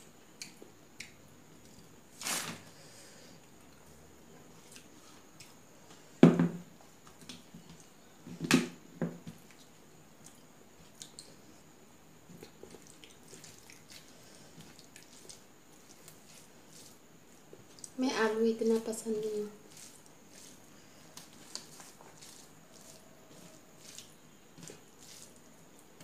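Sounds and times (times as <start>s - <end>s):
soft chewing: 3.4s - 5.6s, 9.4s - 11.5s, 12.2s - 18.0s, 19.7s - 26.0s
fingers squishing rice and curry: 12.2s - 18.0s, 19.7s - 26.0s.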